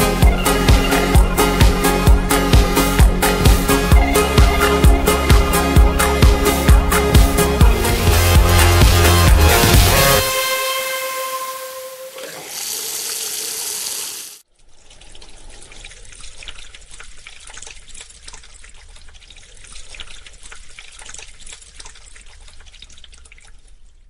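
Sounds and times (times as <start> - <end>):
water splashing and trickling: 0.0 - 24.0
held tone: 10.3 - 13.5
water gushing from a tap: 12.0 - 24.0.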